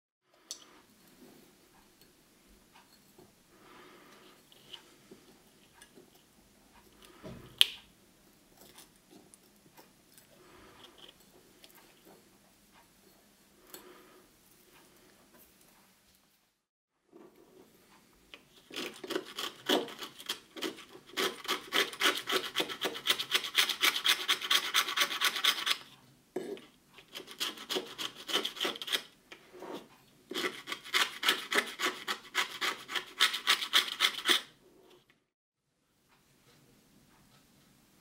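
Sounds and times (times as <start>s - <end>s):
sandpaper rasping: 18.8s - 25.9s, 27.1s - 29.1s, 30.3s - 34.5s.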